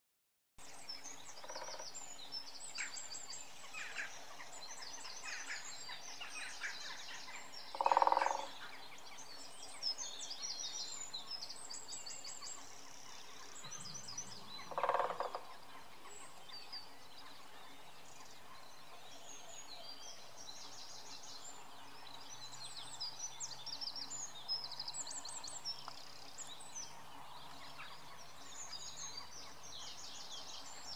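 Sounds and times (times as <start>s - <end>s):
songbirds chirping: 0.6s - 30.9s
woodpecker drumming on tree: 1.4s - 1.8s, 7.7s - 8.5s, 14.6s - 15.6s.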